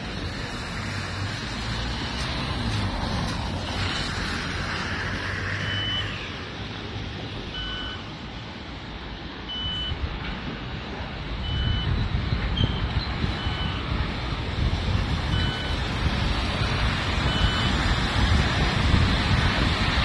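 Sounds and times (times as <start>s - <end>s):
traffic on wet road: 0.0s - 20.0s
vehicles driving past: 0.0s - 20.0s
crossing signal beeps: 5.5s - 6.2s, 7.5s - 8.2s, 9.4s - 10.1s, 11.4s - 13.9s, 15.2s - 15.9s, 17.2s - 17.9s.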